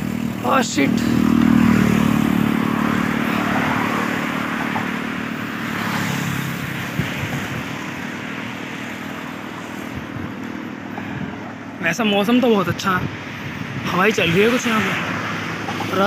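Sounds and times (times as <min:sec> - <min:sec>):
vehicle engine passing by: 0:00.0 - 0:08.4
road noise: 0:00.0 - 0:16.0.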